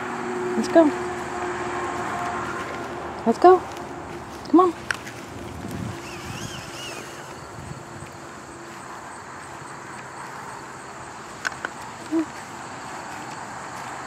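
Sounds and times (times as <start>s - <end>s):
outdoor background noise: 0.0s - 14.0s
warbling high chirp: 5.9s - 8.0s.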